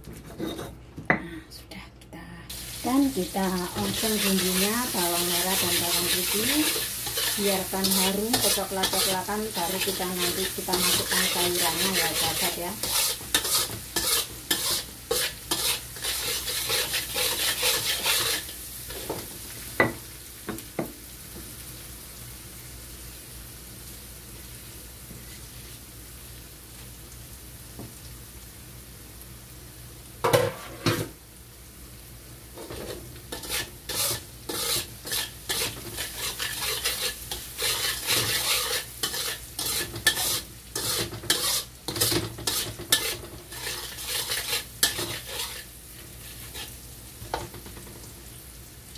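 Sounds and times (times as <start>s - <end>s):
spatula scraping a wok: 0.0s - 0.8s, 3.6s - 19.3s, 32.6s - 47.9s
shallots sizzling in oil: 2.5s - 48.9s.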